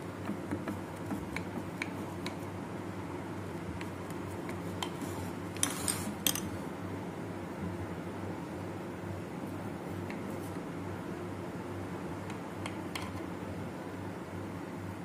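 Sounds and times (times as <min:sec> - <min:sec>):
steady low hum: 0:00.0 - 0:15.0
clinks and scrapes: 0:05.6 - 0:06.5.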